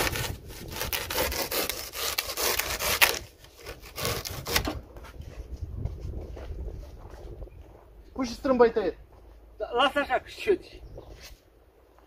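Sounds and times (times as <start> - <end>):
saw blade sawing: 0.0 - 4.8.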